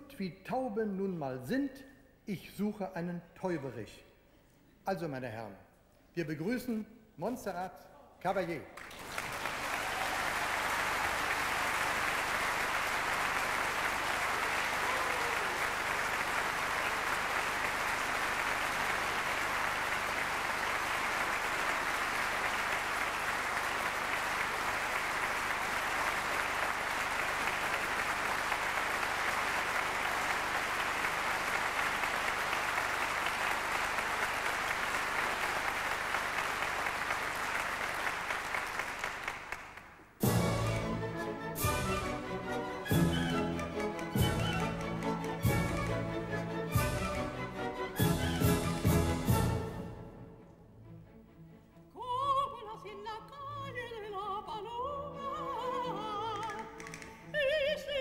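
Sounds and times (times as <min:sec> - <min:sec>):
audience applauding: 0:08.8 - 0:49.6.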